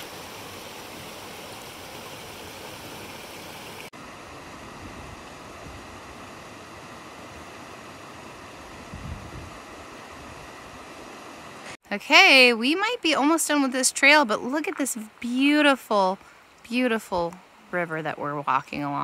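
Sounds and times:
river rushing over stones: 0.0s - 8.7s.

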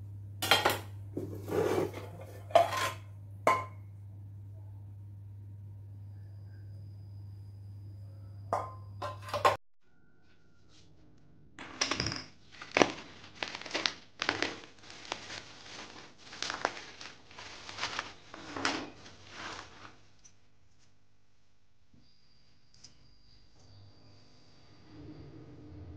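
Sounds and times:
frying pans clanking: 0.4s - 3.8s, 8.6s - 9.6s
plastic bag crinkling: 12.4s - 20.0s.

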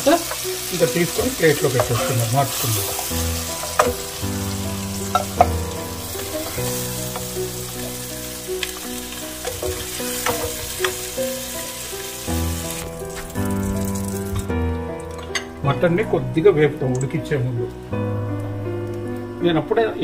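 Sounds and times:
oil sizzling in a pot: 0.0s - 15.6s
spatula scraping and tapping pot: 1.2s - 4.1s.

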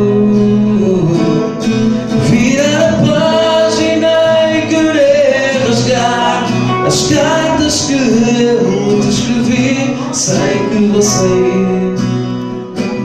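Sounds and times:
backing track music: 0.0s - 13.0s
man singing into a microphone: 0.0s - 13.0s.

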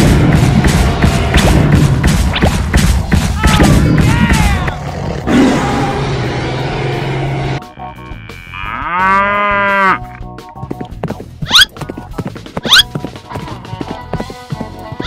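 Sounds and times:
loud rough noise: 3.6s - 7.6s
cow mooing: 7.6s - 10.0s.

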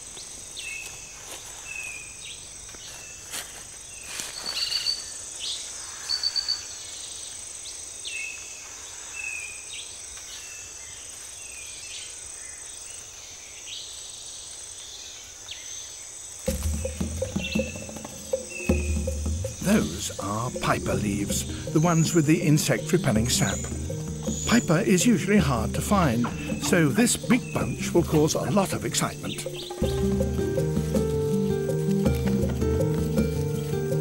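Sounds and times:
high-pitched insect drone: 16.5s - 28.1s
rapid chirps: 16.5s - 34.0s.

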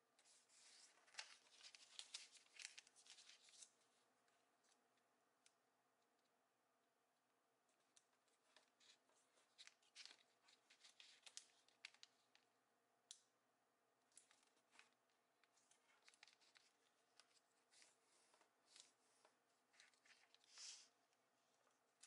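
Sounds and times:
paper crinkling while folded: 0.2s - 3.8s, 8.3s - 12.5s, 14.1s - 21.0s.

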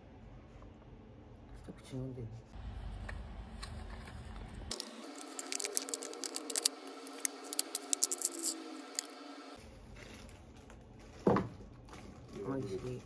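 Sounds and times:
foil lid peeling off plastic cup: 4.7s - 9.1s
plastic cup crackling and clicking: 4.7s - 9.1s.

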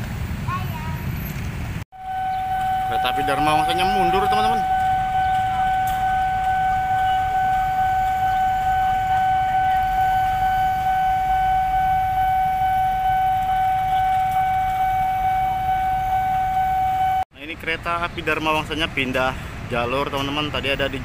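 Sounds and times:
locomotive engine rumble: 0.0s - 21.0s
steady high-pitched whine: 2.0s - 17.2s.

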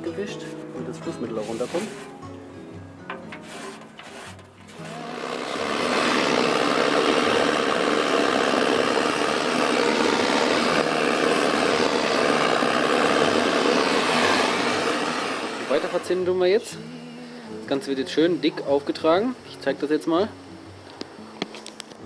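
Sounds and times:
gas torch roaring: 3.6s - 16.6s.

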